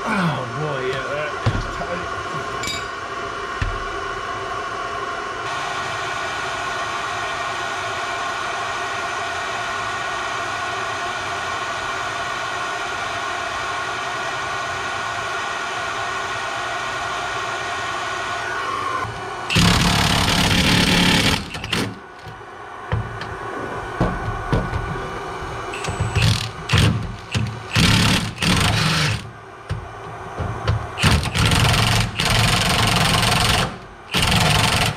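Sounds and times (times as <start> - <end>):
induction heater whine: 0.0 - 34.9
impact wrench hammering: 19.5 - 23.3, 25.8 - 34.9.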